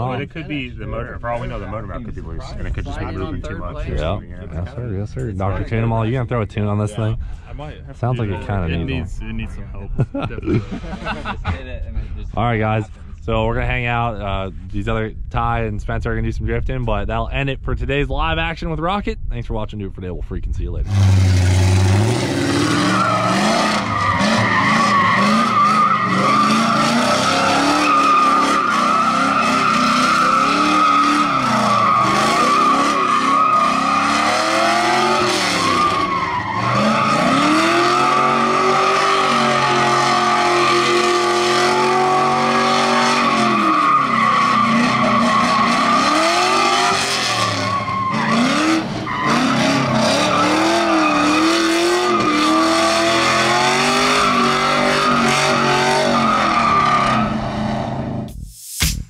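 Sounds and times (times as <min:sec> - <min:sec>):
car engine revving: 0:20.8 - 0:58.3
tire squeal: 0:20.9 - 0:58.0.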